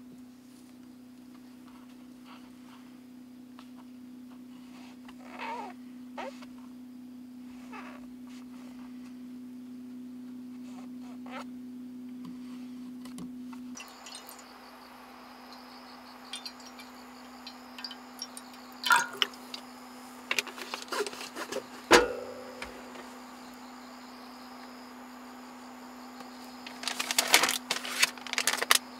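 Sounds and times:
low steady hum: 5.8 - 28.9
insect-like chirring: 13.8 - 24.7, 26.1 - 28.9
loud ringing knocks: 21.9 - 23.1.

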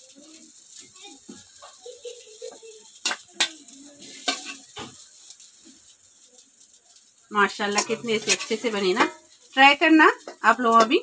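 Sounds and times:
metal spoon scraping steel pan: 2.9 - 6.0, 7.5 - 11.0
spoon clinking on metal: 7.7 - 9.4.

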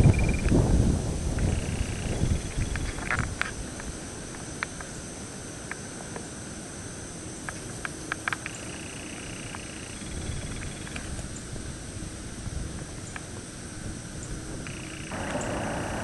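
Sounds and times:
insects droning: 0.0 - 16.0
outdoor background hiss: 0.0 - 16.0.

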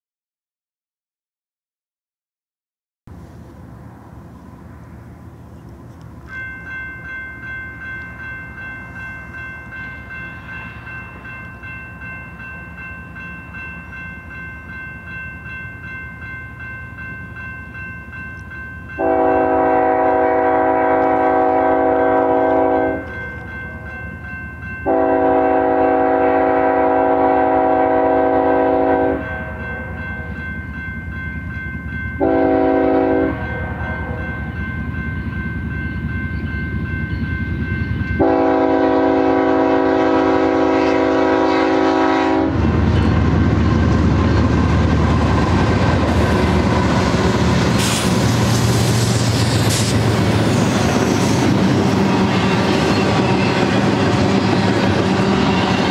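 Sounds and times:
rumble of locomotives: 3.1 - 55.9
crossing bell ringing: 6.1 - 55.9
locomotive air horn blasts: 19.0 - 23.4, 24.8 - 29.7, 32.2 - 34.2, 38.2 - 42.7.

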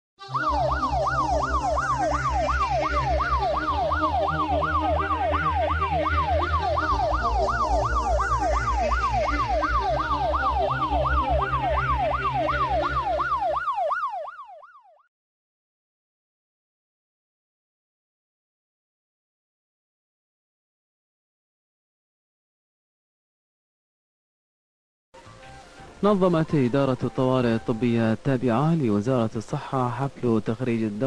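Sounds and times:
ambulance siren yelping: 0.2 - 15.1
low steady drone: 0.3 - 13.6.

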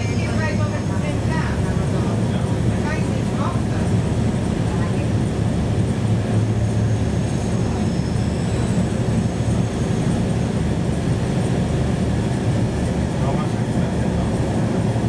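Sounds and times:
tram rumbling: 0.0 - 15.0
faint high whine: 6.3 - 11.2.

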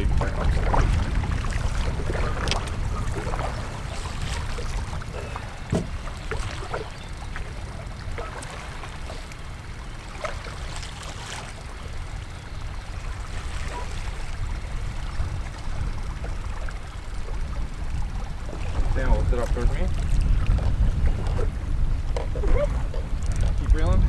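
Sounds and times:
water slapping against boat: 0.0 - 24.0
wind rumbling on microphone: 0.0 - 24.0
light knocks: 5.7 - 6.0.

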